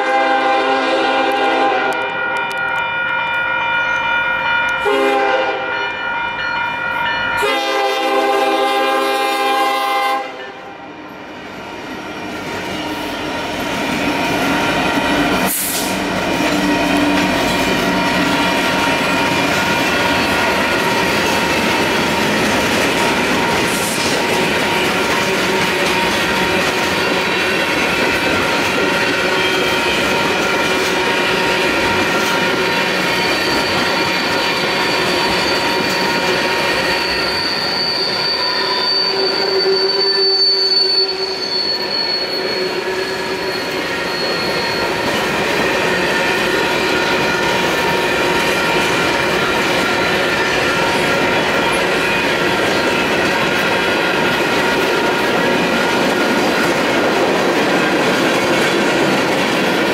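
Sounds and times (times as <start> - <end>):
scratchy signal bell: 2.1 - 7.5, 17.5 - 56.2
electronic crossing bell: 2.2 - 7.5
freight cars clickety-clack: 12.4 - 37.1, 43.6 - 59.9
steel wheel squeal: 12.4 - 56.8.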